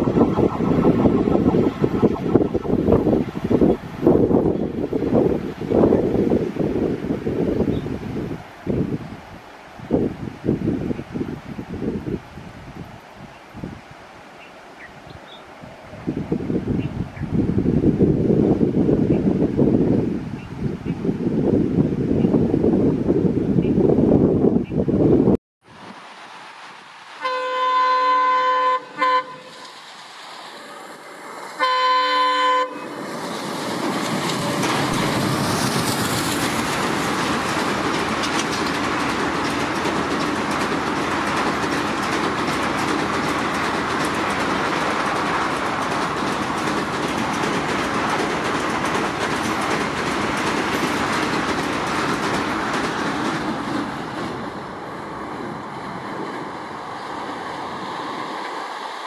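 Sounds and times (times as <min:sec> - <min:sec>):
train wheels rumbling over rails: 0:00.0 - 0:11.6, 0:28.8 - 0:59.0
locomotive horn: 0:27.2 - 0:29.8, 0:31.6 - 0:33.0.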